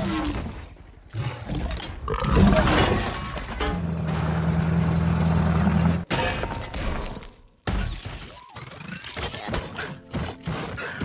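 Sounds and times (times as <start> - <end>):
crash with metal wreckage clattering: 2.5 - 4.8.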